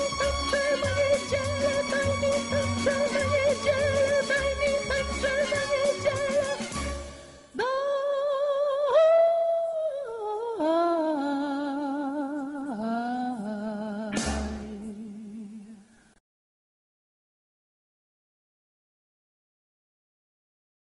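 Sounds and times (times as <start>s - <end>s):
wordless vocal with vibrato: 0.0s - 16.1s
short musical hit: 14.2s - 14.8s.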